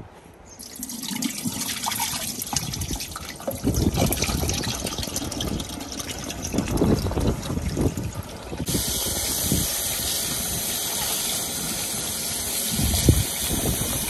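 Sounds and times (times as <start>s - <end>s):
water splashing and sloshing: 0.6s - 8.7s
water running into a bowl: 0.6s - 9.6s.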